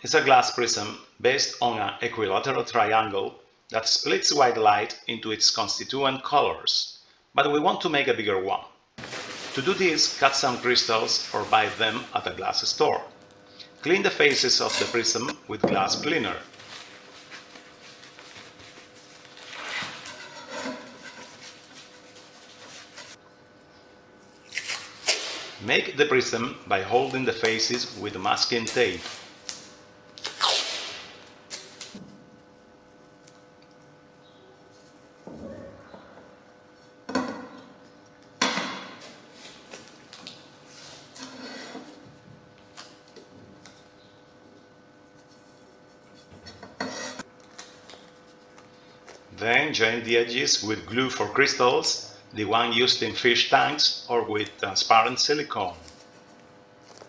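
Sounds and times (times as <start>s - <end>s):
tissue rubbing on glass: 9.0s - 12.4s, 16.4s - 23.2s
masking tape rustling: 9.0s - 15.3s, 16.0s - 23.2s, 24.2s - 25.6s, 26.2s - 32.1s, 39.0s - 41.2s, 41.9s - 49.4s, 54.3s - 57.0s.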